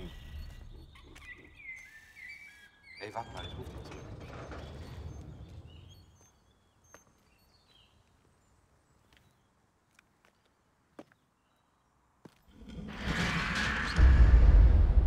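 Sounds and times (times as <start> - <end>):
faint bird chirps: 0.0 - 9.6
low rumble: 12.7 - 15.0.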